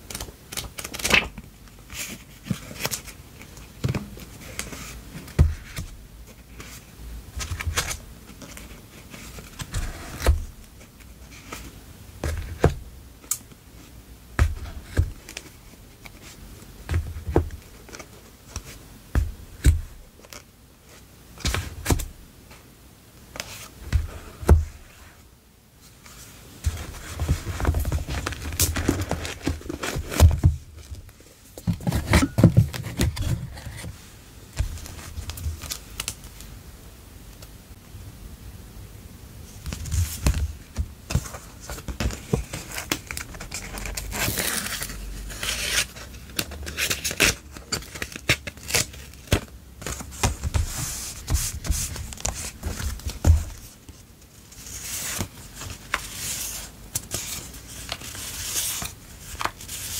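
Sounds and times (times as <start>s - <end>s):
paper rustling: 25.9s - 34.0s, 39.6s - 59.9s.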